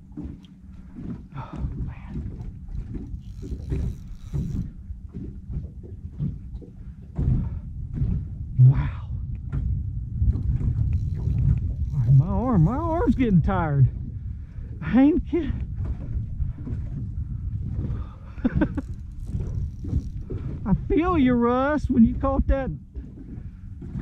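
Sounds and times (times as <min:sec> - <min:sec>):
knocks and thumps on boat: 0:00.0 - 0:24.0
low rumbling noise: 0:00.0 - 0:24.0.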